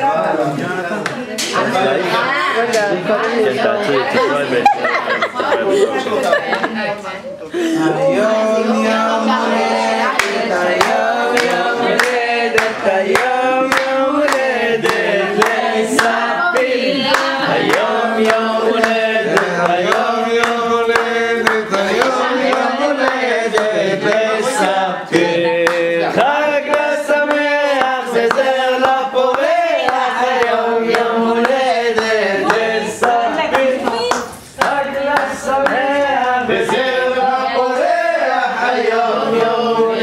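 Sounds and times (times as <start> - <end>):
group singing together: 0.0 - 40.0
people clapping: 8.9 - 40.0.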